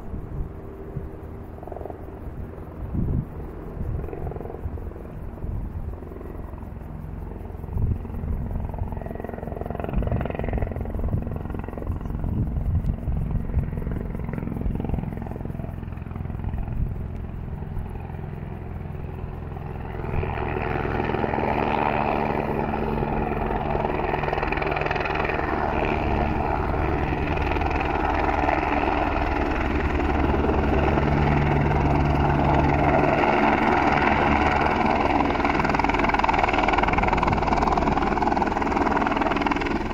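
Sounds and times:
helicopter rotor and turbine: 0.0s - 39.9s
low gusty rumble: 7.2s - 39.9s.

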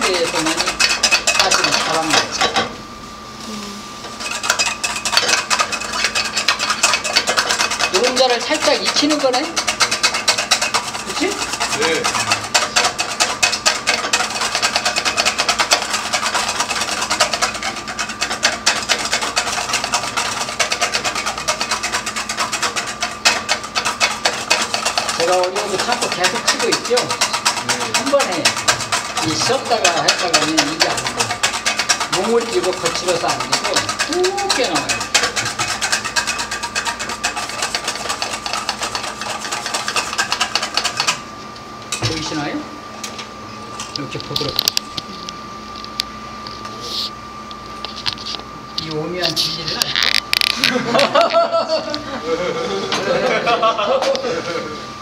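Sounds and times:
whisk clicking in metal bowl: 0.0s - 2.7s, 4.2s - 41.2s.

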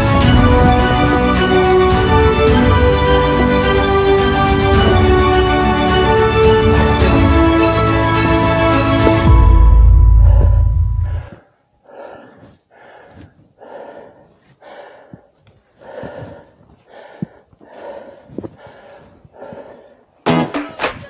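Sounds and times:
hands and feet knocking on roots: 9.0s - 9.3s
person breathing hard: 9.1s - 20.2s
guitar music: 20.3s - 20.8s.

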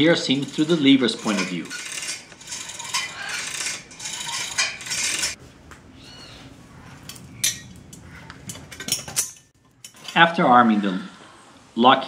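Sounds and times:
chain rattling over sprocket ratchet: 0.0s - 5.4s.

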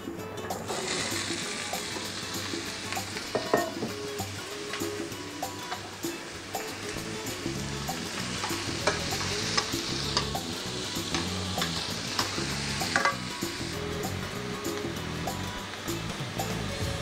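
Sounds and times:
vegetables sizzling in a pan: 0.1s - 17.0s.

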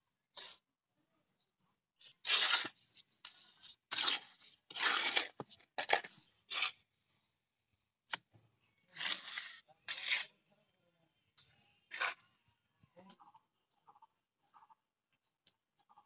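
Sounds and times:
trowel scraping wet mortar: 2.0s - 6.9s, 8.9s - 10.4s, 11.8s - 12.4s.

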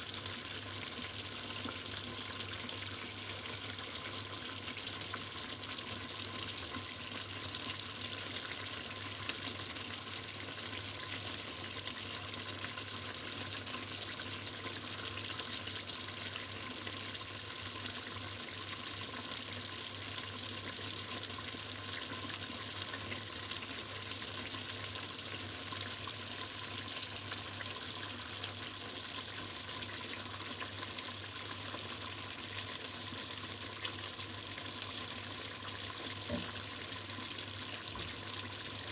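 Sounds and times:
stew simmering with sizzle: 0.0s - 38.9s.

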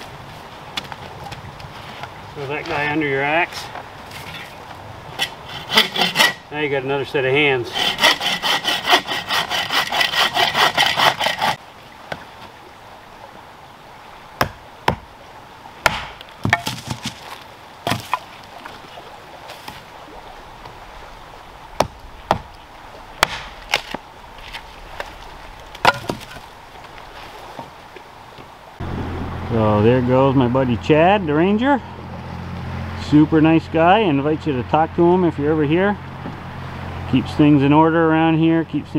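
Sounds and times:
bow saw cutting a log: 5.1s - 6.5s, 7.4s - 11.6s, 23.2s - 25.1s
firewood dropped on a pile: 16.4s - 18.3s, 23.3s - 27.0s.

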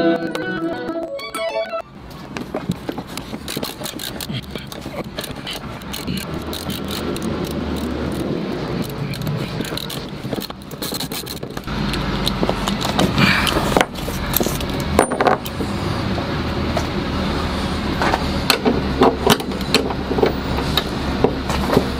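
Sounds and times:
socket ratchet clicking: 3.1s - 13.6s.

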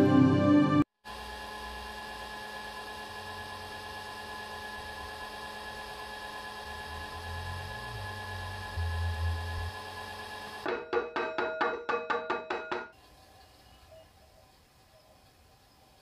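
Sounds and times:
pottery wheel motor whine: 1.0s - 10.7s.

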